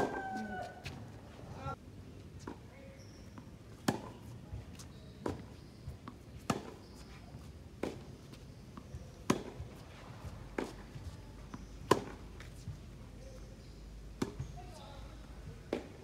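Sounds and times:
tennis ball bounces: 0:00.0 - 0:01.0, 0:03.3 - 0:07.0, 0:07.8 - 0:12.9, 0:13.6 - 0:14.8, 0:15.7 - 0:16.0
tennis ball hit by racquets: 0:00.0 - 0:01.0, 0:03.8 - 0:04.2, 0:05.2 - 0:06.9, 0:07.8 - 0:08.1, 0:08.8 - 0:12.7, 0:14.2 - 0:14.8, 0:15.7 - 0:16.0.

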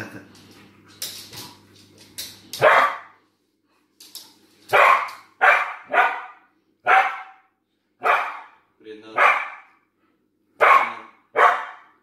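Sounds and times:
dog barking: 0:02.6 - 0:03.2, 0:04.7 - 0:08.6, 0:09.2 - 0:09.8, 0:10.6 - 0:12.0.

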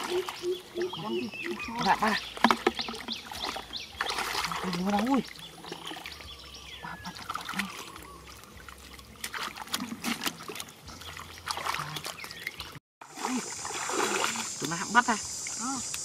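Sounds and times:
hands splashing in muddy water: 0:00.0 - 0:06.3, 0:07.0 - 0:14.8
water trickling and dripping: 0:00.0 - 0:16.0.

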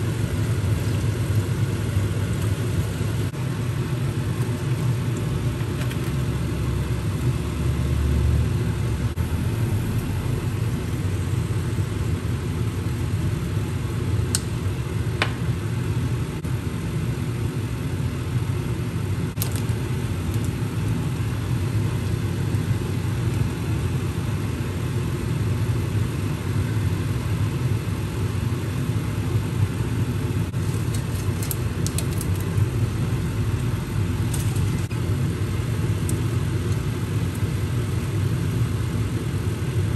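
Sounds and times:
kitchen fan humming: 0:00.0 - 0:39.9.

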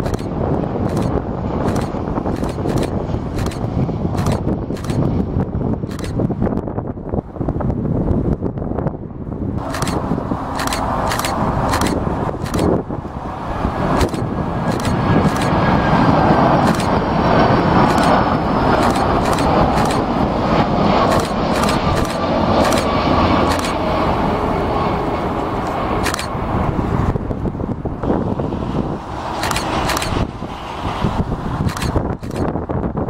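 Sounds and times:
sharp short clicks: 0:00.0 - 0:00.3, 0:00.9 - 0:05.1, 0:05.9 - 0:06.2, 0:09.6 - 0:12.8, 0:14.0 - 0:15.6, 0:16.6 - 0:17.0, 0:17.8 - 0:18.2, 0:18.8 - 0:20.1, 0:21.1 - 0:22.9, 0:23.5 - 0:23.8, 0:26.0 - 0:26.3, 0:29.4 - 0:30.3, 0:31.6 - 0:32.5
jet airliner roar: 0:00.0 - 0:33.0.

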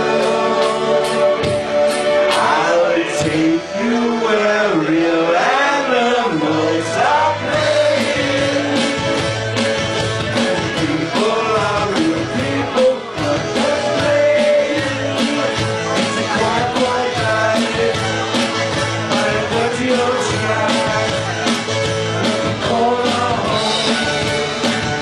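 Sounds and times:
bass line: 0:00.0 - 0:25.0
live rock band playing: 0:00.0 - 0:25.0
man singing: 0:02.3 - 0:25.0
steady drum beat: 0:07.3 - 0:25.0.

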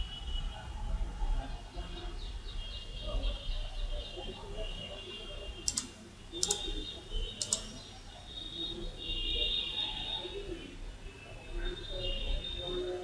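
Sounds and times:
computer mouse double clicks: 0:05.7 - 0:06.7, 0:07.4 - 0:07.7.

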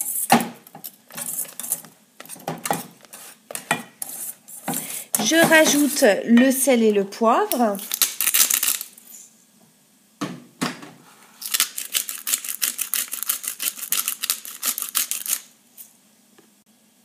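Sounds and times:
pepper mill grinding clicks: 0:11.4 - 0:15.5.

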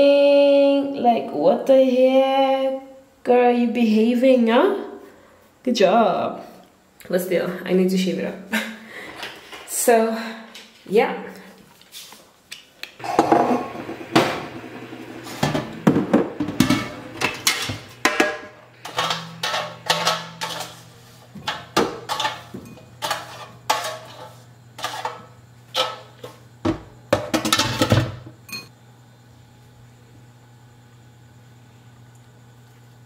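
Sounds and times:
kitchenware clinking: 0:15.4 - 0:26.3, 0:27.1 - 0:28.7.

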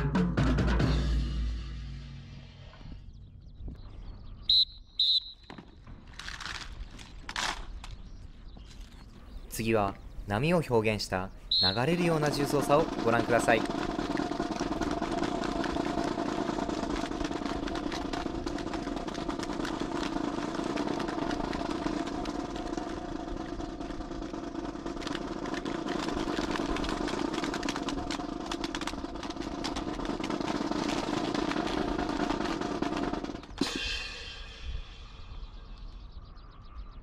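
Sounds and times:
engine-like drone: 0:11.8 - 0:34.6
hands clacking on rifles: 0:24.0 - 0:33.4.

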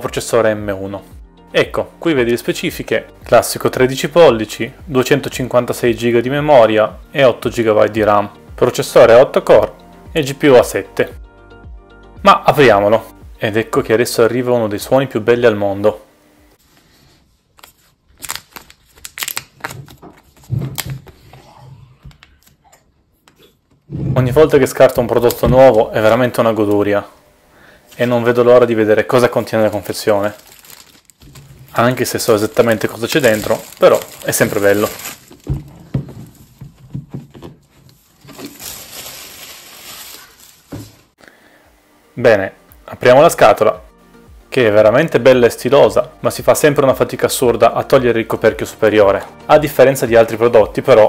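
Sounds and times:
plastic film crinkling and tearing: 0:17.5 - 0:21.2, 0:29.1 - 0:36.8, 0:37.9 - 0:41.2.

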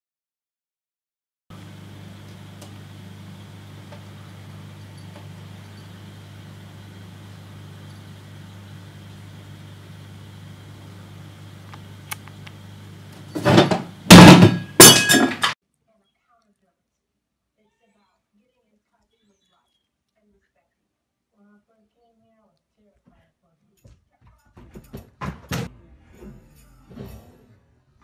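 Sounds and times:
aquarium equipment humming: 0:01.5 - 0:15.6.

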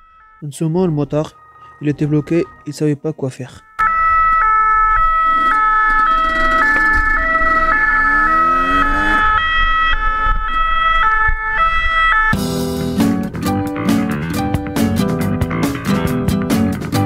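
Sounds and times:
steady high tone: 0:00.0 - 0:12.4
two-tone police siren: 0:00.0 - 0:12.4
dirt bike engine revving: 0:06.9 - 0:09.3
wind rumble: 0:09.2 - 0:12.3.

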